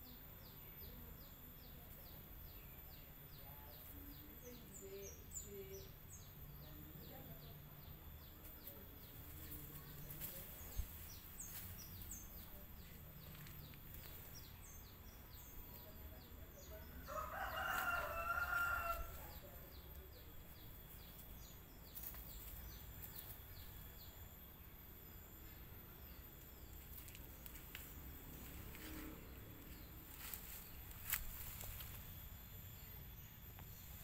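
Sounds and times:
rooster crowing: 17.0 - 19.5.

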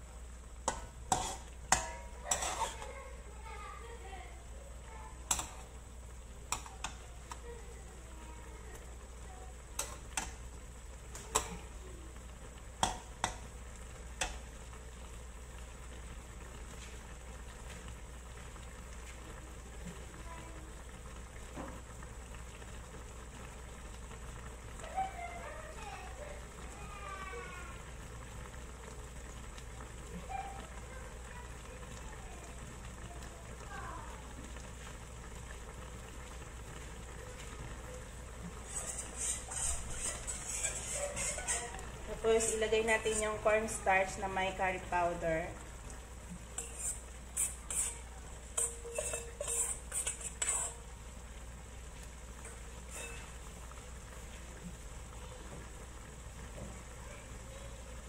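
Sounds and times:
curry simmering in a wok: 0.0 - 58.0
sauce sizzling: 0.0 - 58.0
metal spatula tapping wok: 0.6 - 2.8, 5.3 - 5.6, 12.8 - 13.4, 46.6 - 50.8, 52.9 - 53.2.

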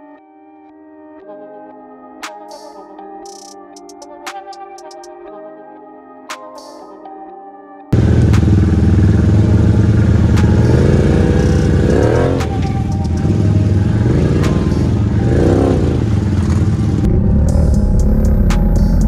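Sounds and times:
atv engines revving: 8.0 - 19.0.

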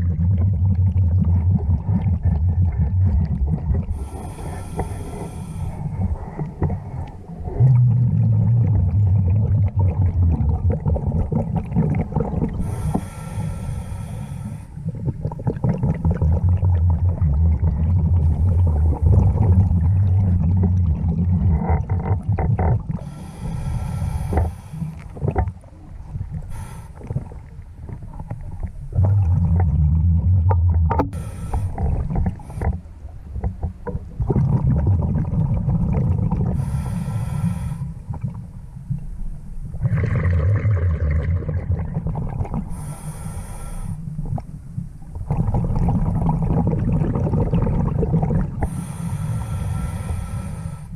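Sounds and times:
exhaled bubbles rumbling underwater: 0.0 - 50.9
regulator inhale hiss: 3.9 - 6.4, 12.6 - 14.9, 23.0 - 25.2, 26.4 - 27.3, 31.1 - 32.9, 36.5 - 38.2, 42.6 - 44.4, 48.6 - 50.9.

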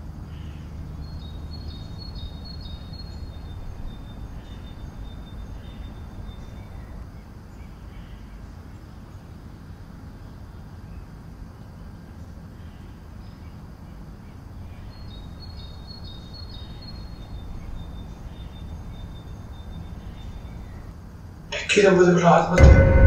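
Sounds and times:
low room hum: 0.0 - 23.0.

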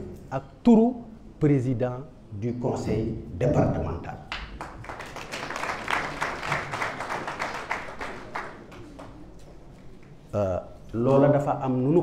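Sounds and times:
audience applauding: 4.3 - 9.4.

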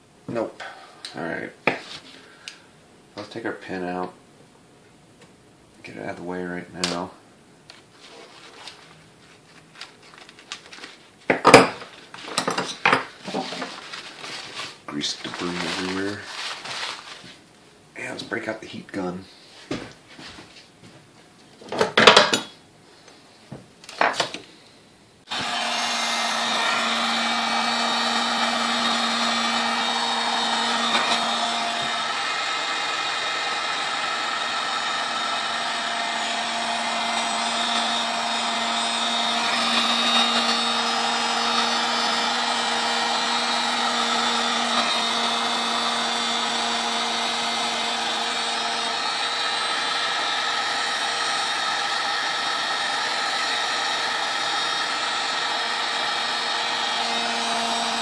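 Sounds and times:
heat gun running: 25.3 - 58.0.

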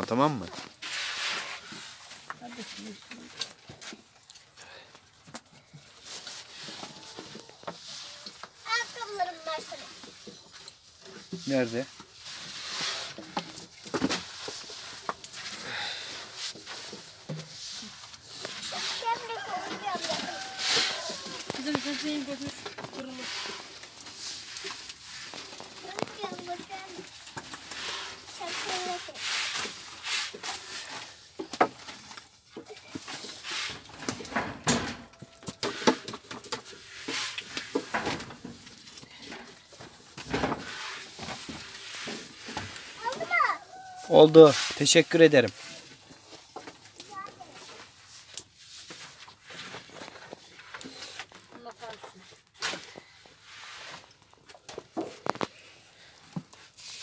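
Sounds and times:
rolling pin swishing on dough: 0.8 - 2.8, 14.1 - 31.3, 44.0 - 44.9.

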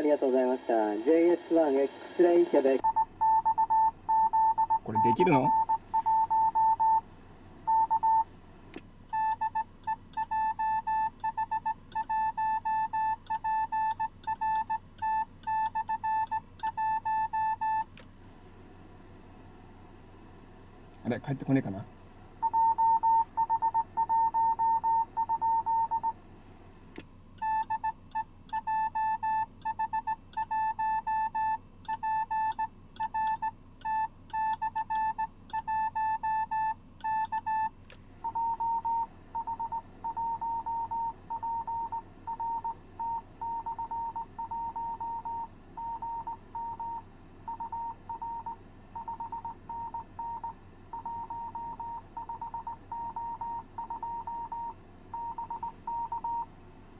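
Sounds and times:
morse code beeps: 2.8 - 7.0, 7.7 - 8.2, 9.1 - 17.9, 22.4 - 26.1, 27.4 - 56.5.

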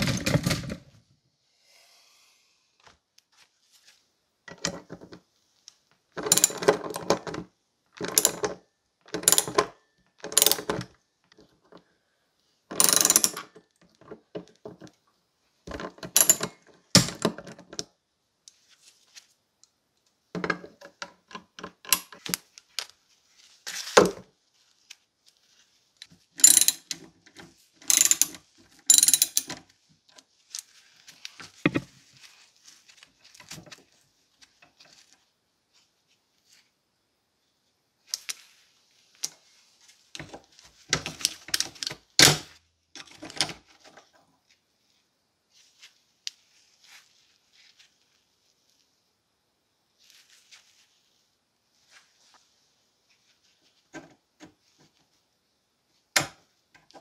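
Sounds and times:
ratchet wrench clicking: 10.4 - 10.7, 12.8 - 13.4, 26.4 - 26.9, 27.9 - 29.5.

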